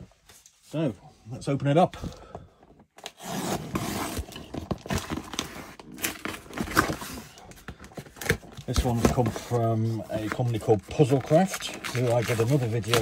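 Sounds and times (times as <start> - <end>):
box cutter slitting packing tape: 3.0 - 7.0.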